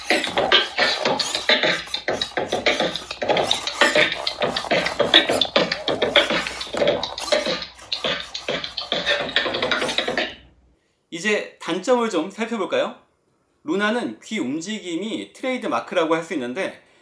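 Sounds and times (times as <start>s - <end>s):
robot beatboxing through speaker: 0.0s - 10.5s.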